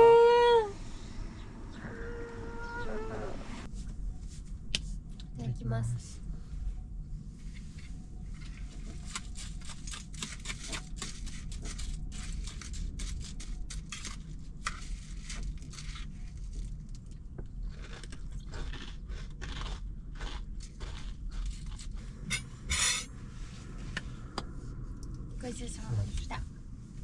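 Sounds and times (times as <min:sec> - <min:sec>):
chewing crunchy granola: 0:09.0 - 0:22.0
metal spoons scraping bowls: 0:22.3 - 0:23.1.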